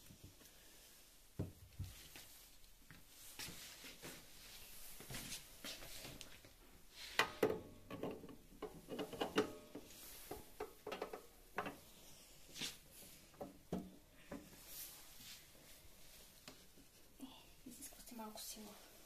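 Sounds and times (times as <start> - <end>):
portafilter metal clicks and knocks: 7.2 - 11.8.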